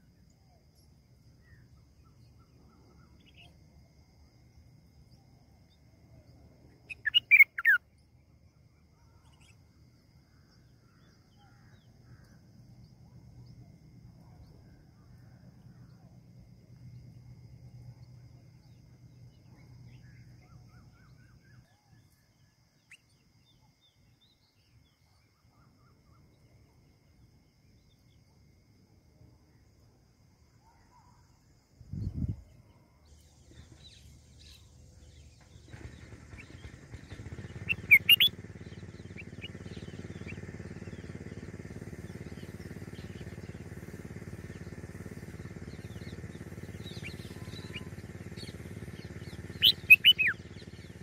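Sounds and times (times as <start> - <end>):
faint bird chirps: 0.0 - 28.3, 30.5 - 51.0
bird calls: 6.8 - 7.8, 33.1 - 51.0
faint low rumble: 30.6 - 51.0.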